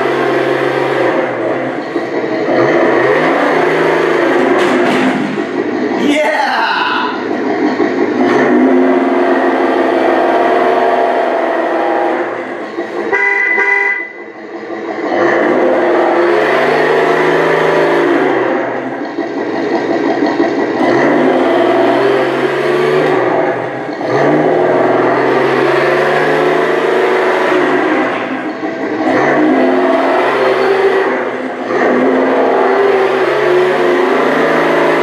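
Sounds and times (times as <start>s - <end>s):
simulated engine revving from speaker: 0.0s - 13.2s, 14.6s - 35.0s
short horn beep: 13.1s - 14.2s.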